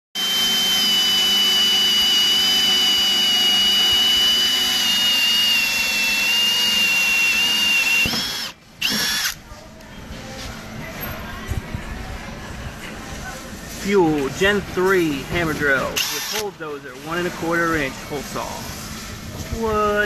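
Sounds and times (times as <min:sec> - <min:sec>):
hammer drill with hole saw cutting wood: 0:00.2 - 0:09.4, 0:16.0 - 0:16.5.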